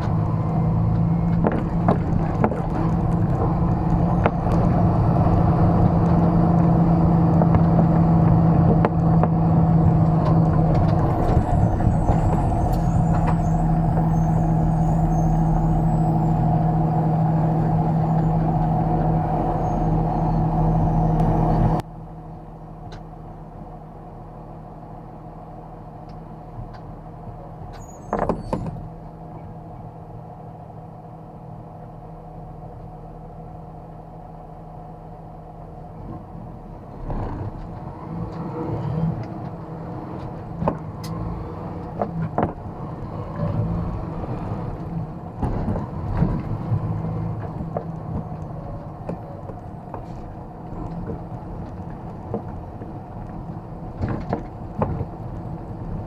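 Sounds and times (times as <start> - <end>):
rattles and clicks in cab: 0.0 - 14.2, 27.6 - 29.5, 37.0 - 56.0
truck engine running: 0.0 - 23.3, 34.8 - 56.0.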